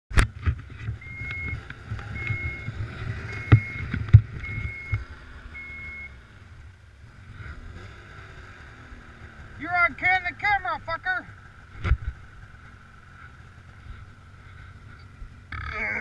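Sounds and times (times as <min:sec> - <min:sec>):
snowmobile engine idling: 0:00.5 - 0:16.0
reverse warning beeper: 0:01.0 - 0:06.2.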